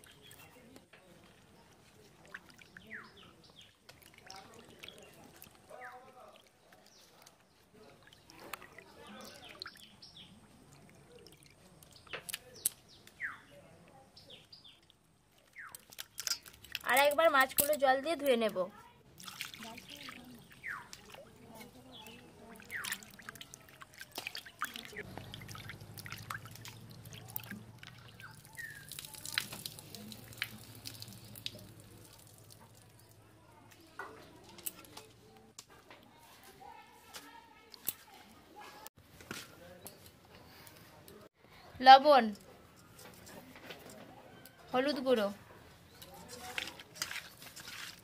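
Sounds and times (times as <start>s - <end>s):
water sloshing in a steel bowl: 0.0s - 12.6s, 15.3s - 18.5s, 19.1s - 34.8s, 46.0s - 48.0s
birds chirping: 2.4s - 17.5s, 19.7s - 33.3s.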